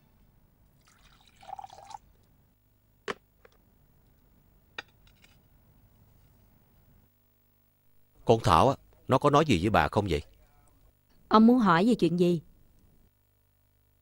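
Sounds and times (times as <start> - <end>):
liquid pouring: 0.8 - 2.0.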